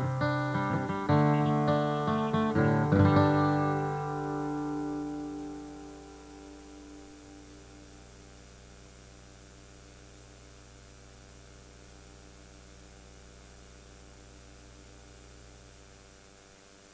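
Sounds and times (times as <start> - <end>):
guitar note: 0.0 - 8.1
electrical mains hum with hiss: 0.0 - 16.9.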